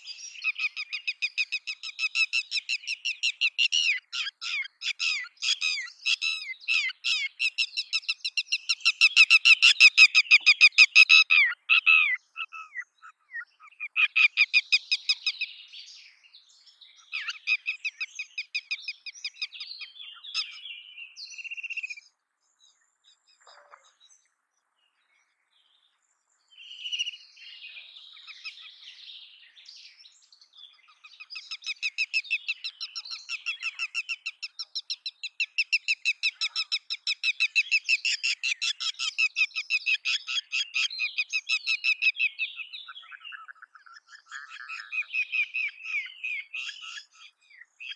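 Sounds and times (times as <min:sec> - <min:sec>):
lapwing calling: 0:00.0 - 0:15.5, 0:17.0 - 0:20.6, 0:30.7 - 0:47.9.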